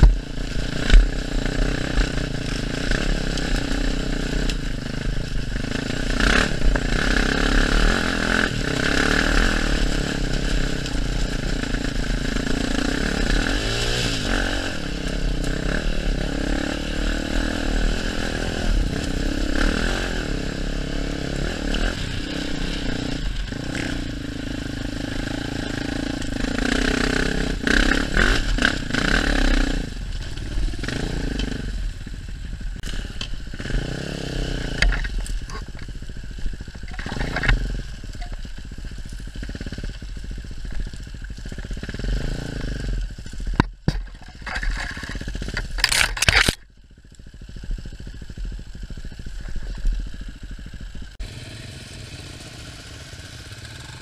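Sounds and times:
motorcycle engine revving: 0:00.0 - 0:54.0
motorcycle hitting ground knocks: 0:43.5 - 0:46.5.

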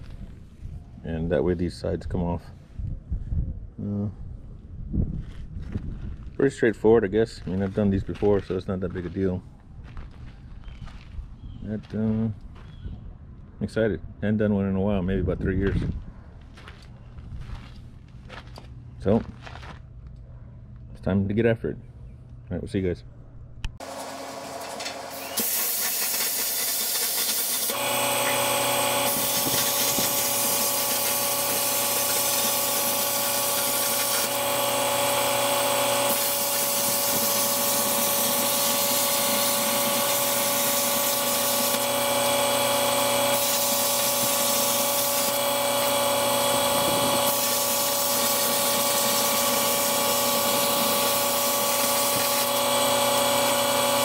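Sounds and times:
steady hum: 0:23.0 - 0:54.0
cutting torch hissing: 0:25.0 - 0:54.0.

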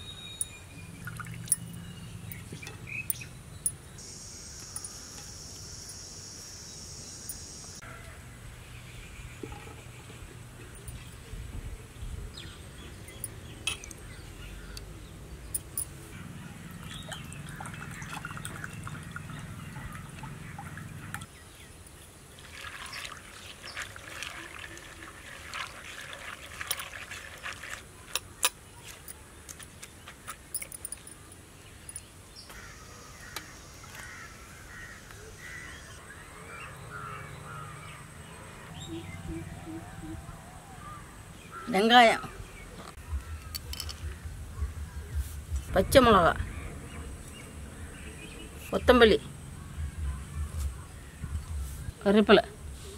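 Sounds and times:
birds calling: 0:00.0 - 0:21.7, 0:30.5 - 0:52.0
wet lentils rattling in clay pot: 0:22.4 - 0:29.2.

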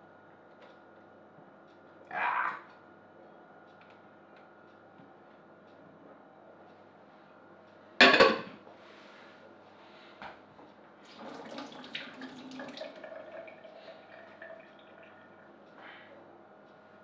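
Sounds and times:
dishes being handled: 0:08.0 - 0:08.5
kitchenware clattering: 0:08.0 - 0:08.6
water splashing and running: 0:11.1 - 0:15.0.

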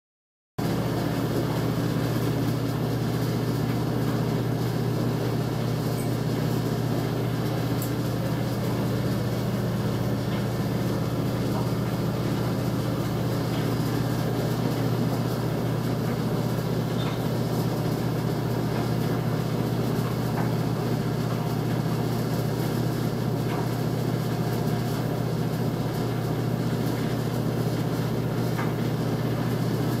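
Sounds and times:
clothes dryer humming: 0:00.6 - 0:30.0.

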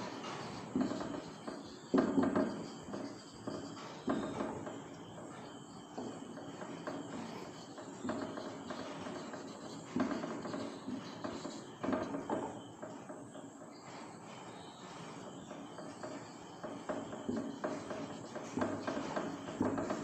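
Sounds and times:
marker squeaking on whiteboard: 0:00.0 - 0:05.0, 0:06.5 - 0:12.6, 0:15.9 - 0:20.0.

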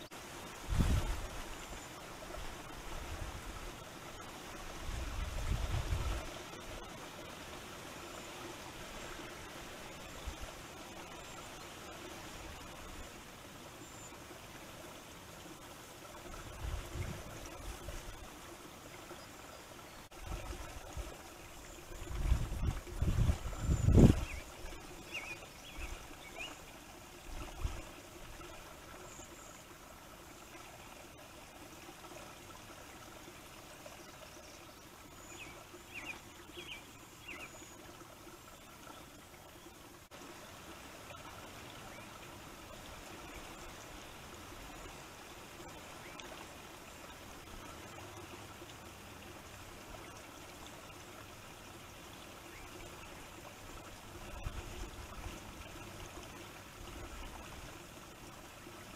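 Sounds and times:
trickling water hiss: 0:00.0 - 0:58.9
wind rumbling on microphone: 0:00.6 - 0:01.6, 0:04.7 - 0:06.4, 0:16.3 - 0:18.2, 0:21.8 - 0:24.8, 0:27.2 - 0:27.9.

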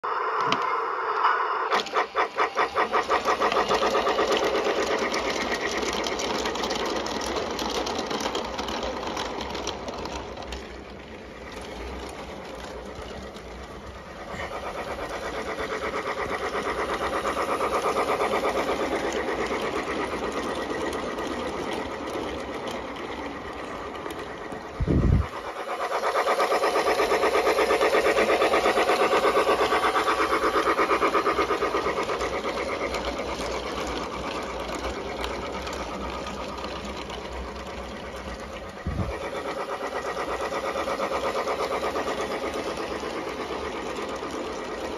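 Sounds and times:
toy train motor whirring: 0:01.6 - 0:44.9
toy train wheels clattering: 0:01.7 - 0:44.9.

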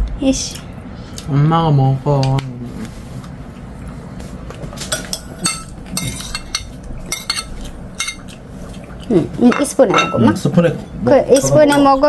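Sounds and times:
tableware clinking: 0:04.8 - 0:08.3, 0:09.4 - 0:10.4.

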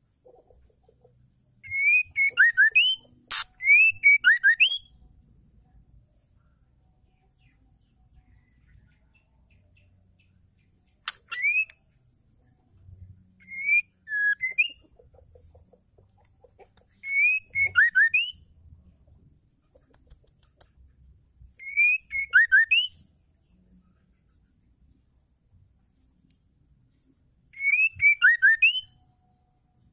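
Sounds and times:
bird whistling song: 0:01.6 - 0:05.0, 0:11.0 - 0:11.8, 0:13.4 - 0:14.9, 0:17.0 - 0:18.5, 0:21.5 - 0:23.1, 0:27.5 - 0:29.1.

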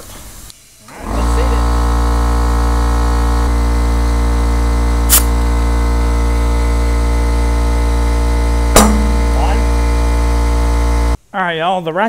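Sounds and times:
steady hum: 0:00.5 - 0:11.3
air hissing from tyre valve: 0:05.1 - 0:05.4.

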